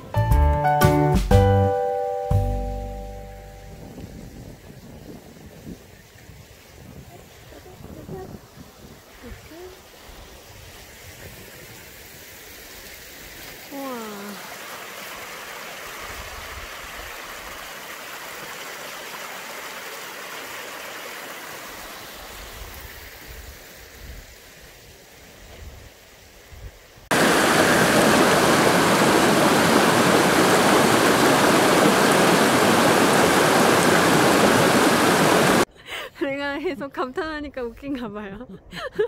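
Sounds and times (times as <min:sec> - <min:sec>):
stream rushing over rocks: 0:06.2 - 0:24.7, 0:27.1 - 0:35.7.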